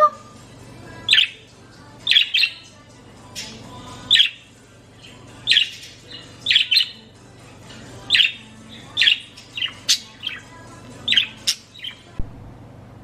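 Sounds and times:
budgie chirping: 2.0s - 2.7s, 3.4s - 7.1s, 8.1s - 12.0s.

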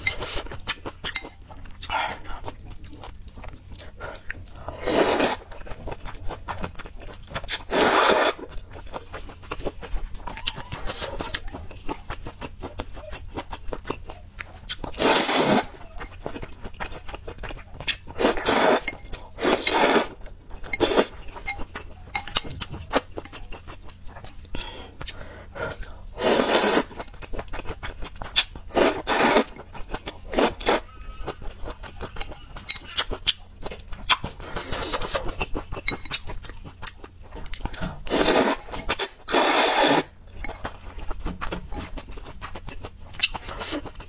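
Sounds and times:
wet chewing: 0.0s - 44.0s
loud noodle slurping: 4.8s - 5.4s, 7.6s - 8.5s, 15.0s - 15.7s, 18.2s - 21.1s, 26.2s - 27.0s, 28.4s - 29.6s, 30.3s - 30.8s, 38.1s - 40.1s.

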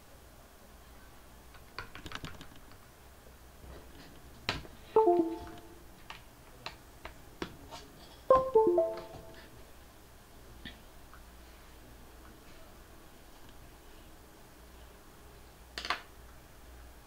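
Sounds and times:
descending chimes: 5.0s - 5.9s, 8.3s - 9.5s.

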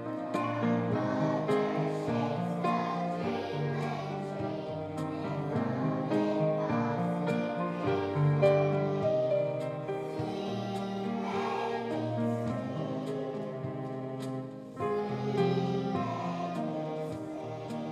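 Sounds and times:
children singing: 0.0s - 17.9s
instrumental accompaniment: 0.0s - 17.9s.

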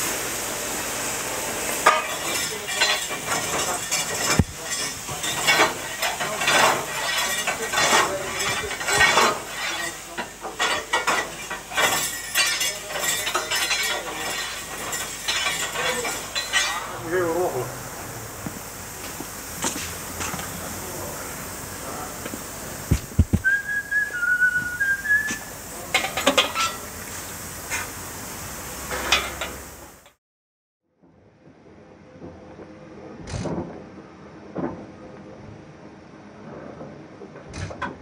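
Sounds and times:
steady steam hiss: 0.0s - 30.2s
scraping clinking and crackling: 1.8s - 17.4s, 25.8s - 27.0s.

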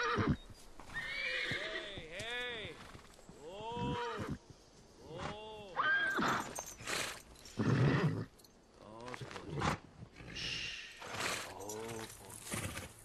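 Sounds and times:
horse whinnying: 0.0s - 2.0s, 3.6s - 4.4s, 5.2s - 8.3s.

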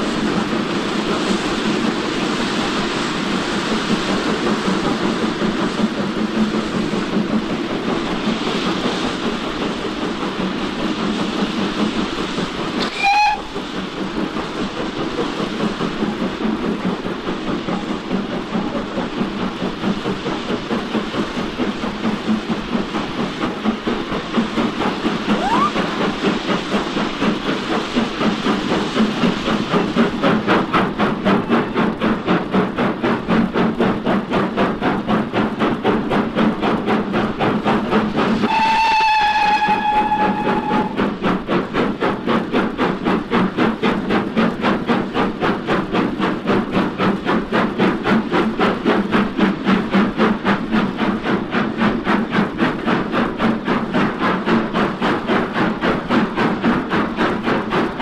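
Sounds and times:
steam locomotive chuffing: 0.0s - 58.0s
steam locomotive whistle blast: 12.8s - 13.6s, 25.4s - 25.8s, 38.4s - 41.0s.

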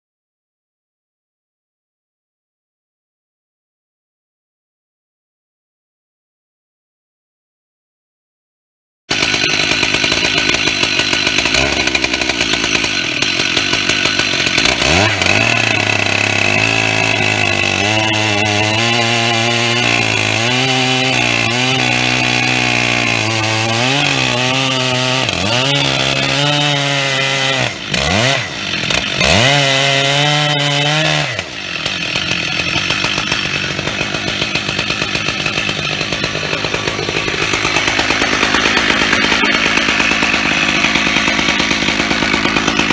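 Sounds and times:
chainsaw cutting through log: 9.1s - 42.9s.

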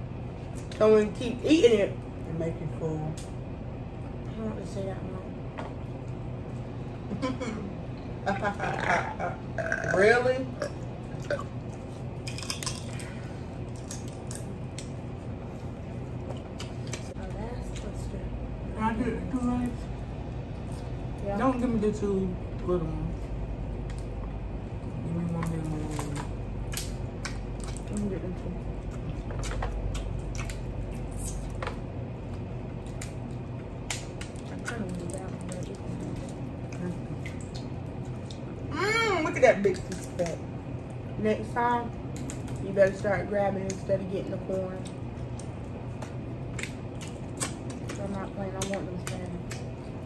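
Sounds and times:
chewing: 10.6s - 17.1s, 28.8s - 38.6s, 44.4s - 50.0s
wet squishing: 10.6s - 18.0s, 25.4s - 38.7s, 39.3s - 41.2s, 42.0s - 50.0s
shells cracking and snapping: 12.2s - 15.0s, 25.4s - 28.1s, 29.2s - 35.7s, 42.1s - 42.6s, 44.8s - 49.8s
crab shell snapping: 25.9s - 27.9s, 33.8s - 34.8s.

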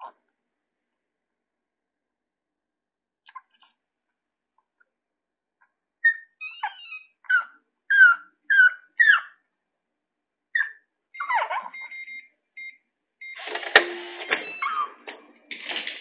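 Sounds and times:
dog whining in high yelps: 6.0s - 9.4s, 10.6s - 12.1s, 14.5s - 15.0s
keypad electronic beeps: 11.2s - 15.0s.

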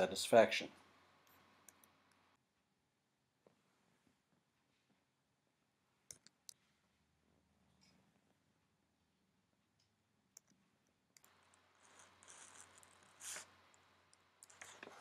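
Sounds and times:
soft hiss: 11.3s - 15.0s.

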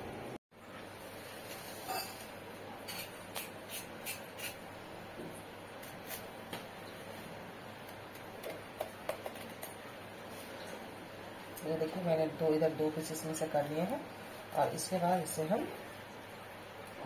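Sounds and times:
knife scraping gourd skin: 2.9s - 4.6s, 5.8s - 6.3s.

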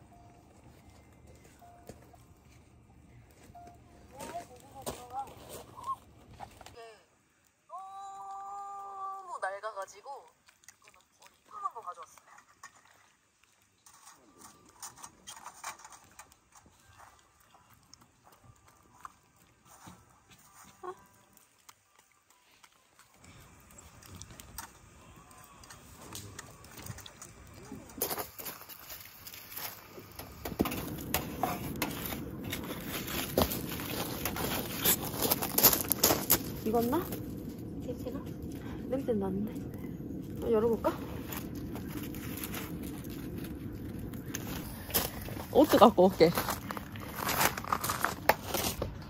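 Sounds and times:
fire crackling: 0.0s - 49.0s
dog licking food: 10.1s - 13.1s, 16.8s - 28.0s.

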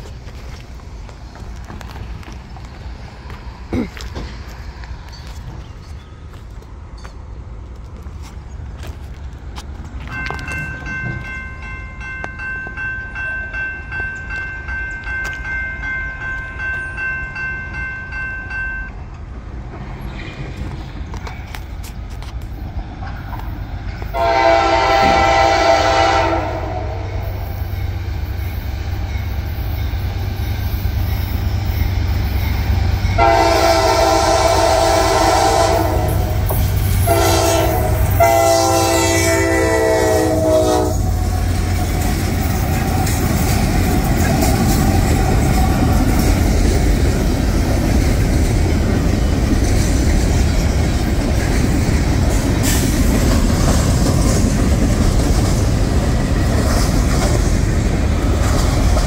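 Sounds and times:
low rumble of train: 0.0s - 59.0s
crossing bell ringing: 5.0s - 7.4s, 9.8s - 19.3s, 23.3s - 46.9s
locomotive horn blasts: 24.1s - 27.4s, 33.1s - 41.6s.

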